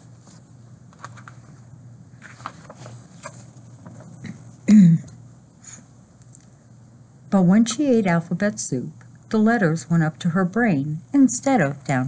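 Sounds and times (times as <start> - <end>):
paper pages rustling: 0.0 - 4.6.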